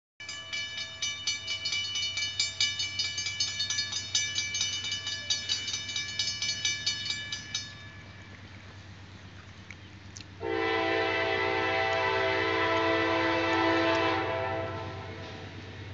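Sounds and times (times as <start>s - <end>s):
crossing bell ringing: 0.2s - 9.1s.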